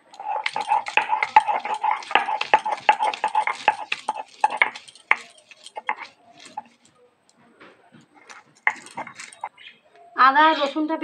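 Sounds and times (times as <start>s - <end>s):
stone roller grinding on stone: 0.0s - 6.9s, 8.2s - 9.5s
hard stone knocks: 0.3s - 6.6s.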